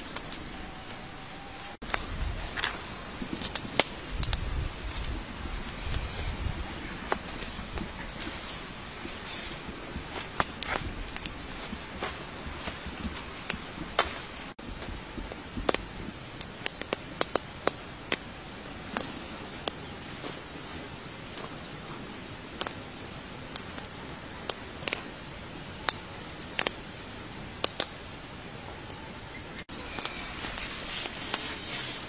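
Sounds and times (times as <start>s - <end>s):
wood fire crackling: 0.0s - 32.0s
sharp pops and snaps: 1.8s - 5.1s, 9.6s - 18.3s, 21.4s - 25.1s, 25.8s - 26.8s, 27.6s - 28.0s.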